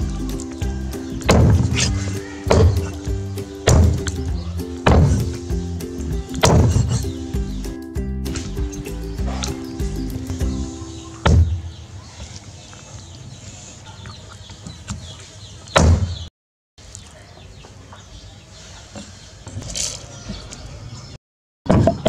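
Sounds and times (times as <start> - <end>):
chickens clucking: 0.0 - 7.8, 8.4 - 15.7
loud sudden thumps: 1.2 - 3.0, 3.6 - 5.4, 6.3 - 7.1, 11.2 - 11.7, 15.8 - 16.3.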